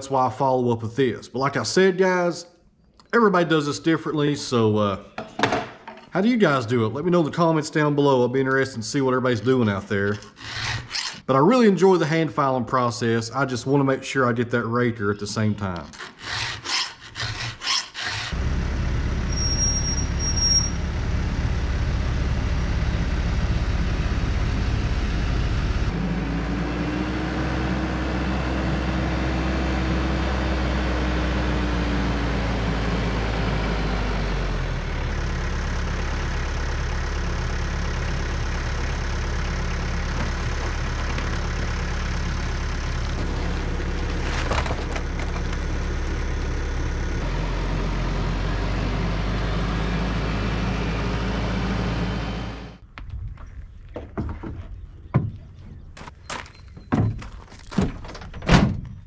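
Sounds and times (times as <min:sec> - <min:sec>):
file stroking chainsaw chain: 0:10.1 - 0:11.3, 0:15.8 - 0:18.3
tractor diesel engine running: 0:18.0 - 0:52.8.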